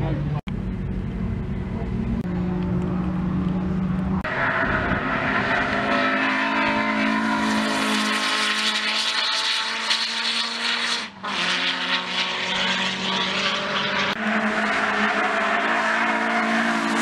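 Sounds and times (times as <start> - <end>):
car engine at high revs: 0.0 - 17.0.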